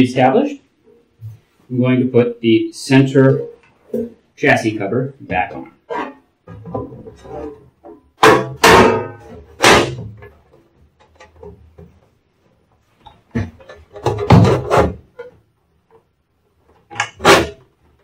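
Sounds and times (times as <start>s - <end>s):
sheet metal clanking and scraping: 5.8s - 11.9s, 13.3s - 15.4s.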